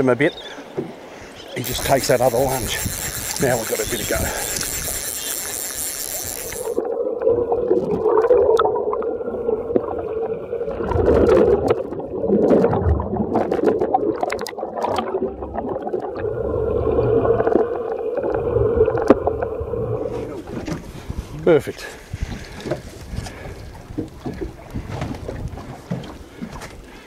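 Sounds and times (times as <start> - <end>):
sharp clicks: 1.6 - 6.8
water splashes: 1.6 - 21.0.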